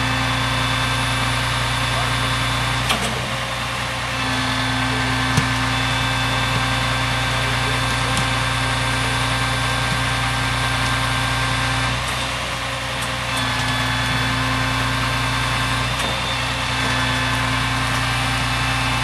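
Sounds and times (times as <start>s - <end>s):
hydraulic whine: 0.0s - 19.0s
truck engine running under load: 0.0s - 19.0s.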